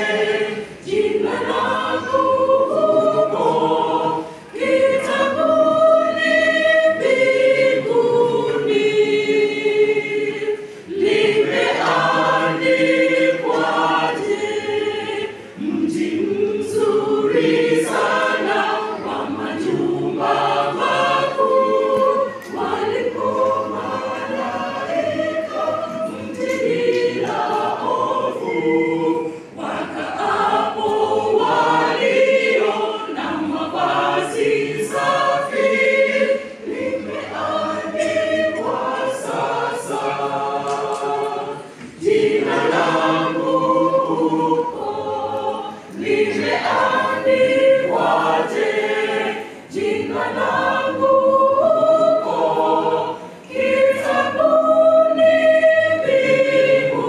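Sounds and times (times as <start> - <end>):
mixed choir singing: 0.0 - 57.0.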